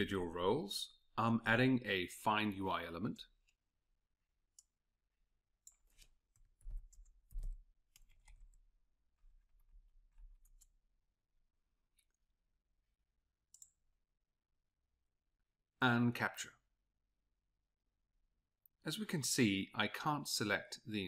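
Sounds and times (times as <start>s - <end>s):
mouse clicks: 13.5s - 13.8s.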